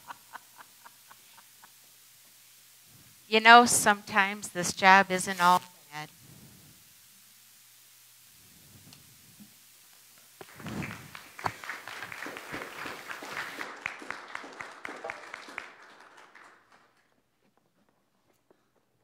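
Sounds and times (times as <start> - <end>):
audience applauding: 10.4 - 17.9.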